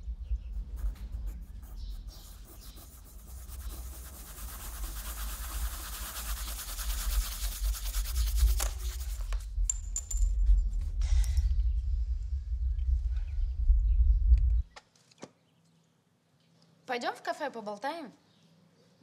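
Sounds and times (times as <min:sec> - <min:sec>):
pencil sketching on paper: 0:00.5 - 0:09.4
low steady rumble: 0:09.0 - 0:14.7.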